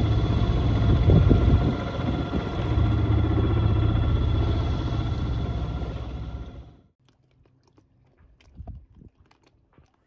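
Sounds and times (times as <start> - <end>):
boat engine droning: 0.0 - 6.9.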